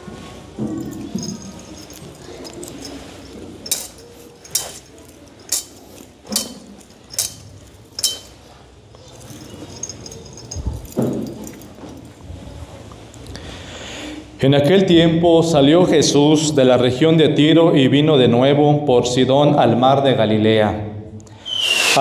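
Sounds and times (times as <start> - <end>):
metal censer chains clinking: 0.6 - 12.6.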